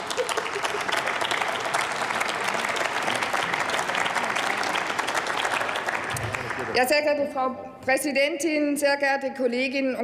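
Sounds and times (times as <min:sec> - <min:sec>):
crowd applauding: 0:00.0 - 0:07.1.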